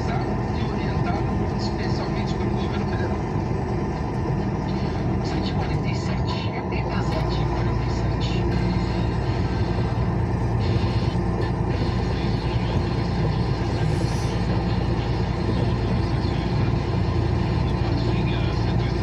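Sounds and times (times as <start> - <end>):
engine and tyre noise in vehicle: 0.0 - 19.0.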